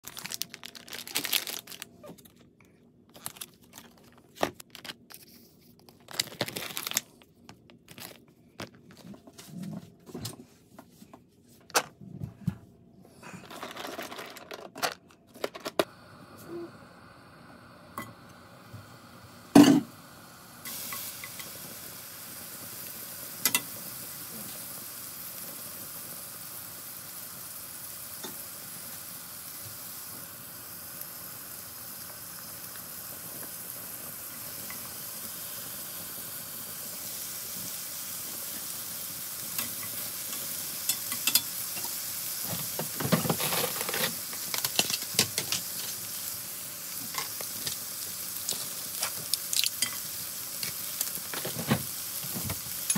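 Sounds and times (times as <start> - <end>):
meat sizzling in a pan: 16.1 - 52.9
stirring crackles and clicks: 47.0 - 51.6.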